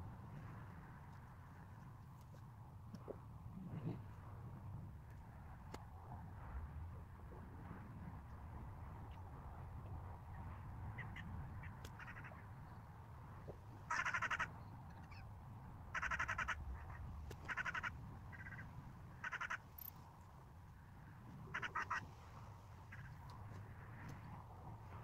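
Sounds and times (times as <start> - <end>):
bird harsh rasping calls: 19.2 - 19.7.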